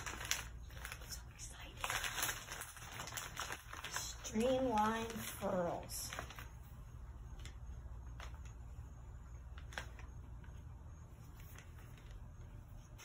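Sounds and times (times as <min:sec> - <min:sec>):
packaging rustling: 0:00.0 - 0:08.7, 0:09.3 - 0:10.5
low steady hum: 0:00.0 - 0:13.0.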